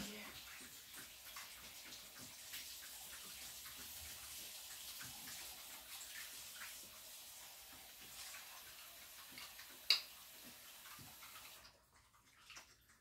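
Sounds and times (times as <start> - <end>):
dogs lapping and chewing: 0.1 - 13.0.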